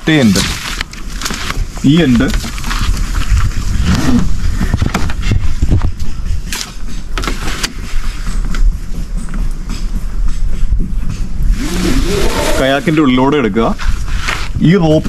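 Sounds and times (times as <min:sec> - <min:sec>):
rope scrapes and knocks: 0:00.1 - 0:05.9, 0:13.7 - 0:14.6.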